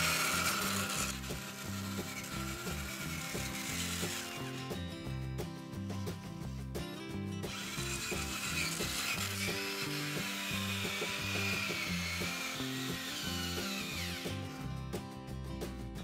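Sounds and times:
small electric motor whining: 0:00.0 - 0:04.8, 0:07.5 - 0:14.9
background music: 0:00.0 - 0:16.0.

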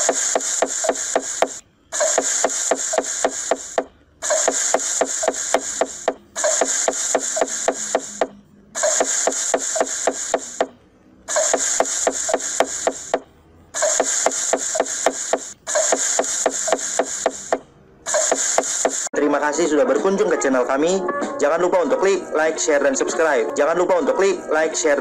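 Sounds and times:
cleaver chopping on wooden board: 0:00.0 - 0:19.1.

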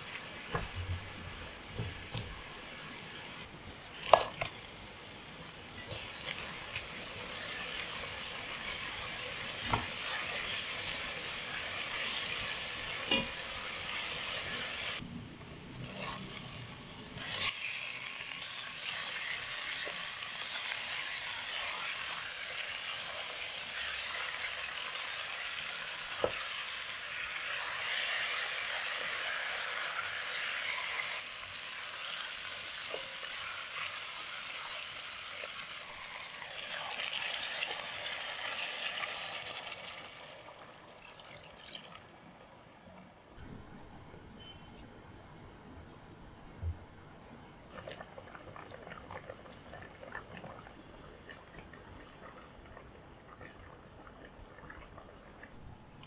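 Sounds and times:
chicken sizzling in oil: 0:00.0 - 0:15.0, 0:15.7 - 0:42.0.

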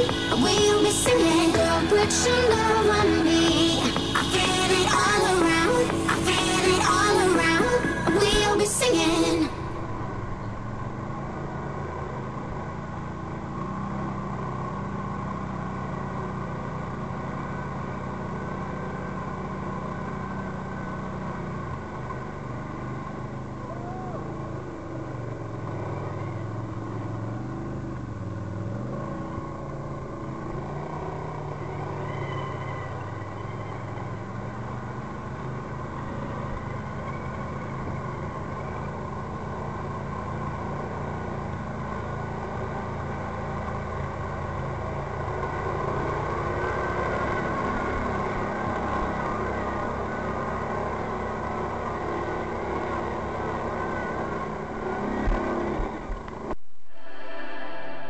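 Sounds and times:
quad bike engine under load: 0:24.2 - 0:56.6.

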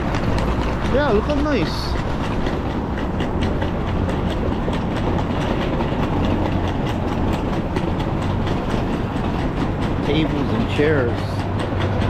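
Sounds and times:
footsteps on pavement: 0:00.0 - 0:12.0
street noise rumble: 0:00.0 - 0:12.0.

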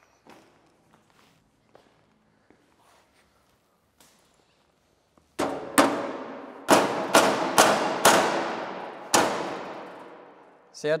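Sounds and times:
metallic bangs on sheet metal: 0:05.4 - 0:10.5.

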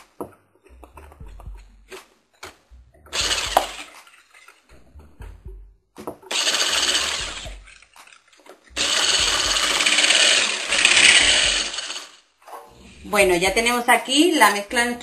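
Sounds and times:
electric hand mixer beating batter: 0:03.2 - 0:04.0, 0:06.3 - 0:07.8, 0:08.8 - 0:12.2.

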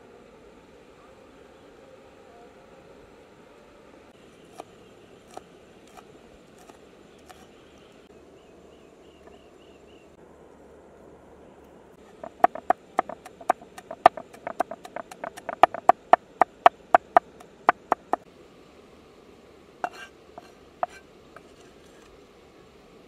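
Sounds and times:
cleaver chopping on wooden board: 0:12.2 - 0:18.2, 0:19.9 - 0:21.0.

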